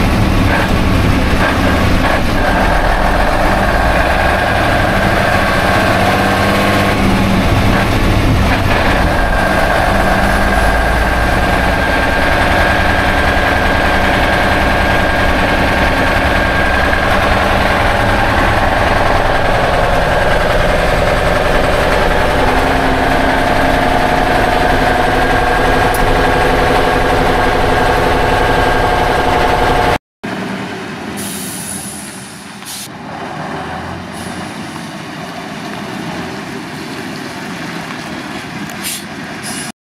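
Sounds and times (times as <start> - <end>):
diesel truck engine running: 0.0 - 39.7
short hisses: 38.8 - 39.7.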